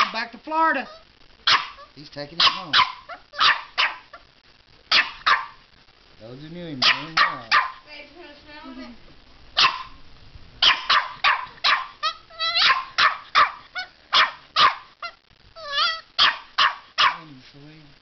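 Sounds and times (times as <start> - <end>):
puppy barking: 0.8 - 4.2, 4.9 - 5.6, 6.8 - 7.8, 9.6 - 10.0, 10.6 - 17.3
puppy whining: 10.7 - 16.4.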